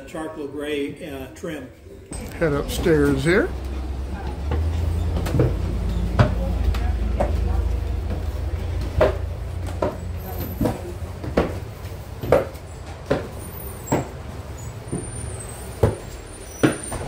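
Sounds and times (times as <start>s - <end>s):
footsteps on carpeted stairs: 2.2s - 13.2s.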